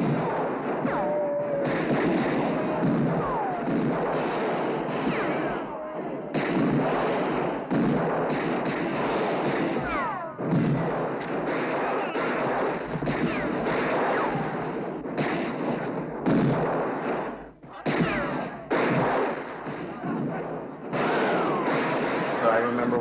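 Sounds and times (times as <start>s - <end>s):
dense gunfire: 0.0s - 23.0s
falling whines: 21.0s - 23.0s.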